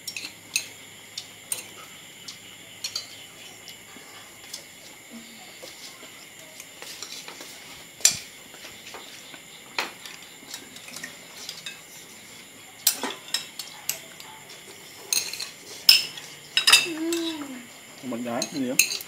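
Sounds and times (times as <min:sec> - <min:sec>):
cutlery clinking on plates: 0:02.8 - 0:03.2, 0:08.0 - 0:08.3, 0:09.7 - 0:11.9, 0:12.8 - 0:17.4, 0:18.4 - 0:19.0.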